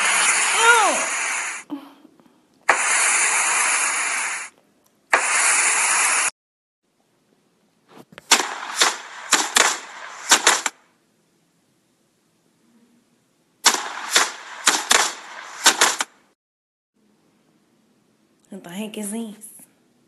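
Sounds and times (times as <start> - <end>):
loud rushing hisses: 0.0 - 1.6, 2.7 - 4.5, 5.1 - 6.3
sharp pops and cracks: 8.2 - 10.8, 13.6 - 16.2.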